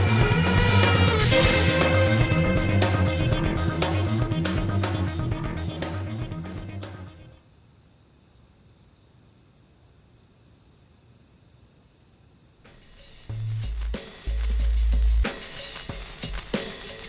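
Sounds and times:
drum and guitar music: 0.0 - 7.3, 12.7 - 17.0
cricket chirping: 6.8 - 13.2.

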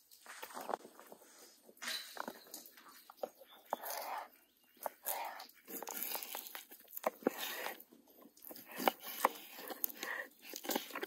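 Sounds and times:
knife crunching through food: 3.1 - 11.0.

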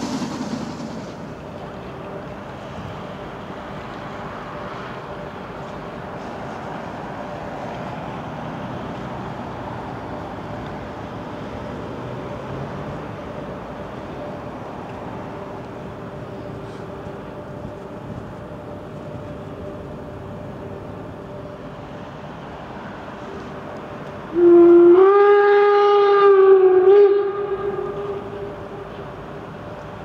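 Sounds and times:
steam whistle blast: 0.0 - 1.5, 24.3 - 28.8
steady background hum: 0.0 - 30.0.

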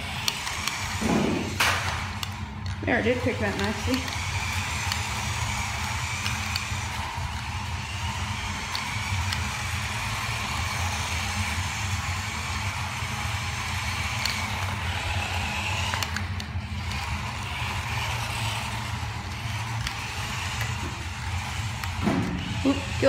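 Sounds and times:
rubber tires on concrete: 0.0 - 23.0
steady low hum: 0.0 - 23.0
toy truck electric motor whining: 0.0 - 23.0.

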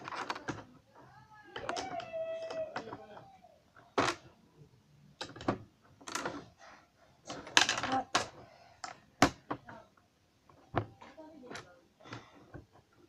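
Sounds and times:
plastic bricks clicking and clattering: 0.0 - 0.8, 5.2 - 6.5, 7.2 - 9.6.

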